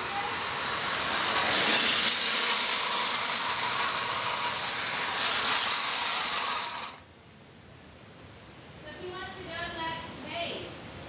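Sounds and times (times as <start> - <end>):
toy train motor whirring: 0.0 - 7.1.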